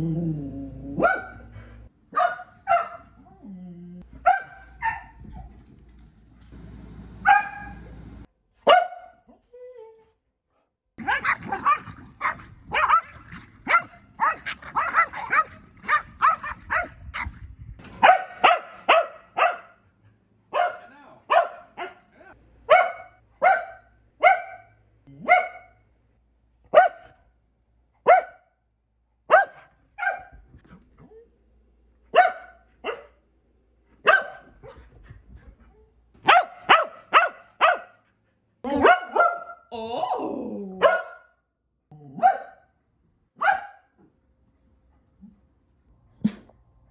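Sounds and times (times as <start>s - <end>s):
dog barking: 1.0s - 1.5s, 2.1s - 3.2s, 4.2s - 5.2s, 7.2s - 7.8s, 8.6s - 9.2s, 11.0s - 17.3s, 18.0s - 19.8s, 20.5s - 22.1s, 22.7s - 25.8s, 26.7s - 27.2s, 28.0s - 28.5s, 29.3s - 30.4s, 32.1s - 33.2s, 34.0s - 34.8s, 36.2s - 38.0s, 38.6s - 39.7s, 40.8s - 41.4s, 42.1s - 42.8s, 43.4s - 44.0s.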